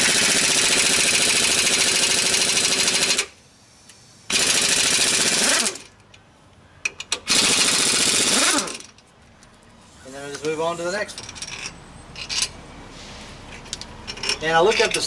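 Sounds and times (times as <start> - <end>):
pneumatic impact wrench hammering: 0.0 - 5.9, 6.9 - 9.0.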